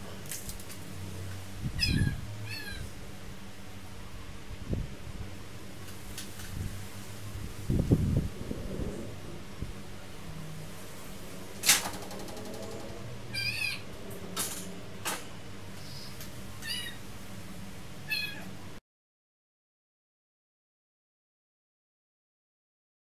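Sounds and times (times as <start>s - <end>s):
cat meowing: 1.8s - 2.9s, 13.3s - 13.9s, 16.6s - 17.0s, 18.1s - 18.5s.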